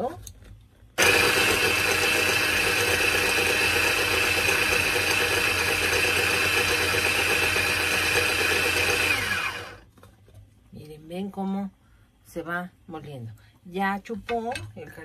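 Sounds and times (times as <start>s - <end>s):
electric grinder whining: 1.0s - 9.8s.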